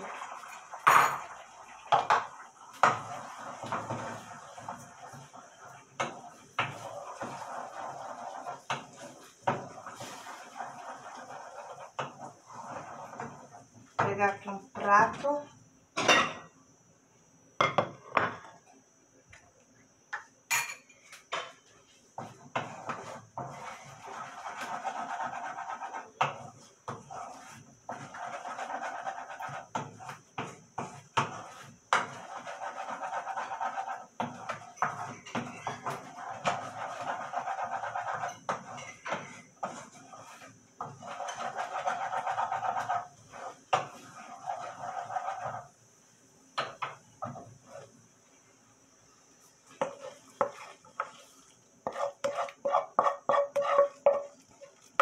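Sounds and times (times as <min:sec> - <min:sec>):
utensil scraping in frying pan: 0:00.0 - 0:15.0, 0:21.5 - 0:48.4, 0:49.1 - 0:55.0
plate knocking on stone countertop: 0:17.6 - 0:18.4.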